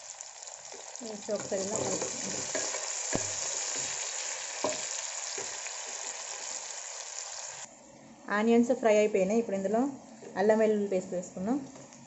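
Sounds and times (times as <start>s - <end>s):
food sizzling in hot oil: 0.0s - 7.7s.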